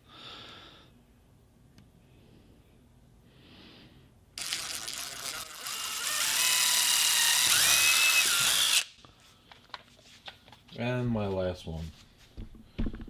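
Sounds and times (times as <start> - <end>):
drill boring into wood: 4.4 - 8.9.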